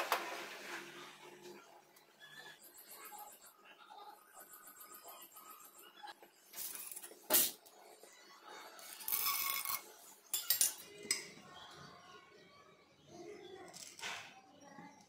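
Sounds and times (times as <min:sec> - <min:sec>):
steel utensils clinking on pot: 0:08.8 - 0:11.3.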